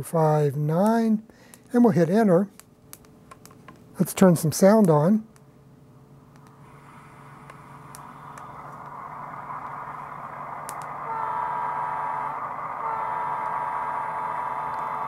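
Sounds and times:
whining tone: 6.5s - 15.0s
model diesel engine rumble: 6.7s - 15.0s.

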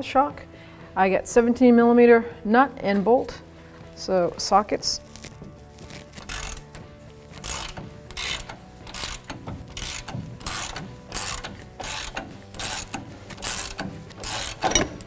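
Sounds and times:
ratchet wrench clicking: 6.2s - 6.8s, 7.4s - 15.0s.

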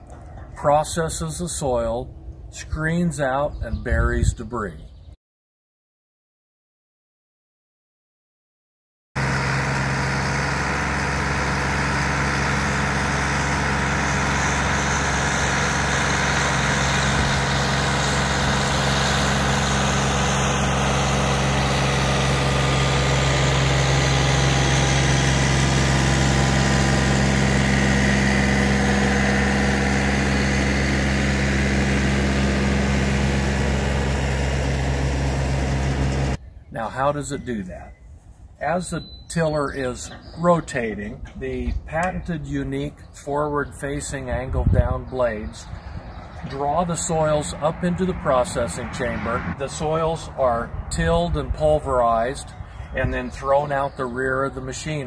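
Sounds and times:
tractor diesel engine running: 9.2s - 36.4s, 43.7s - 55.0s.

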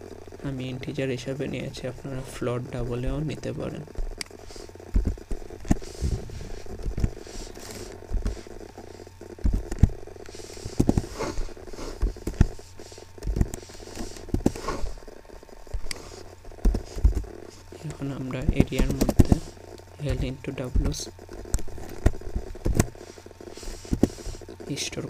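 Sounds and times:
steady low hum: 0.0s - 25.0s
keyboard typing: 6.5s - 15.0s, 15.7s - 23.0s.

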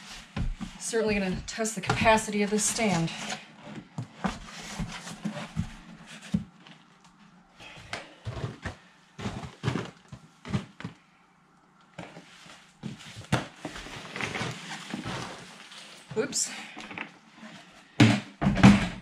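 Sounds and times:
moist bedding sliding out of tub: 13.7s - 16.1s.

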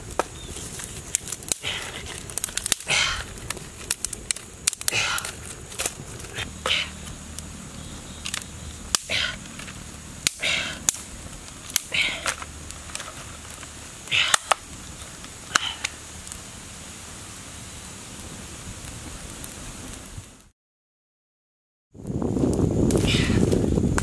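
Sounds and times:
twigs snapping and cracking: 0.0s - 16.5s
breathy puffs: 1.5s - 3.5s, 4.8s - 5.6s, 6.2s - 7.1s, 9.0s - 9.6s, 10.2s - 11.0s, 11.8s - 12.5s, 14.0s - 14.6s, 15.5s - 16.0s.

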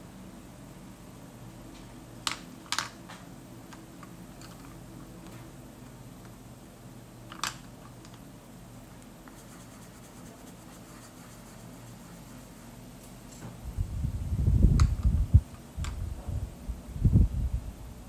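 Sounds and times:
steady low hum: 0.0s - 18.0s
pencils clicking together: 2.2s - 3.0s, 3.7s - 4.9s, 7.3s - 8.2s
pencil scratching on paper: 9.3s - 12.8s.

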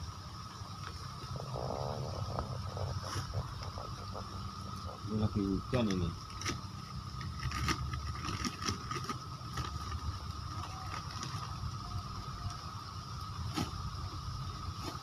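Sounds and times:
steady low rumble: 0.0s - 10.7s.

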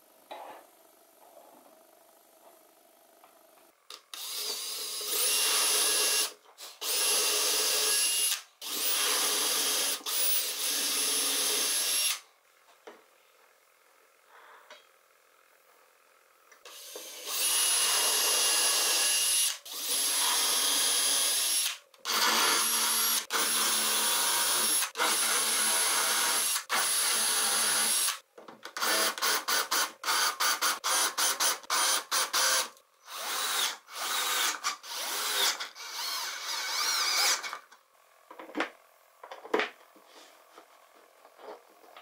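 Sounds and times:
power drill boring holes: 4.1s - 12.2s, 16.7s - 28.2s, 28.8s - 37.6s.

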